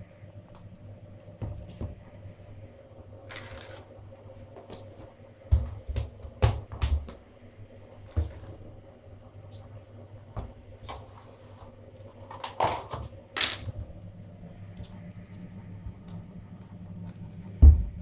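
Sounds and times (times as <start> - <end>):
low hum: 0.0 - 18.0
plastic scraping rustles: 3.3 - 3.9.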